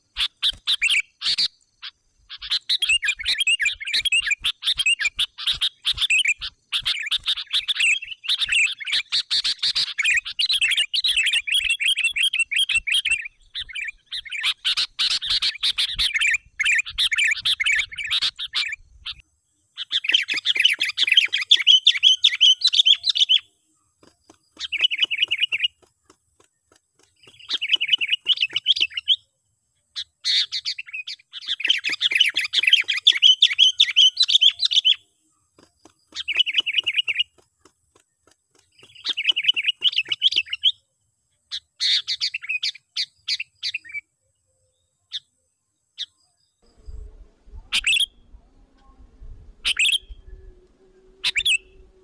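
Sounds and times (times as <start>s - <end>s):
bird chattering calls: 0.0s - 19.2s, 19.8s - 23.4s, 24.0s - 25.9s, 26.9s - 29.2s, 35.8s - 37.4s, 38.5s - 40.7s, 47.7s - 48.2s, 49.6s - 50.2s.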